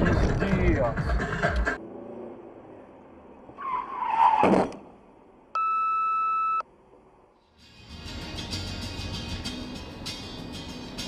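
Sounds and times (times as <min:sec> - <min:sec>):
tyre squeal: 0:03.6 - 0:04.6
electronic beep: 0:05.6 - 0:06.6.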